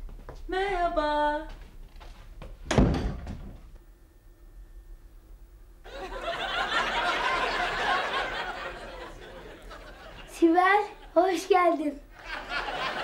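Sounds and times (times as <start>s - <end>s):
door opening thump: 2.6s - 3.7s
audience laugh track: 5.9s - 11.2s, 12.1s - 13.0s.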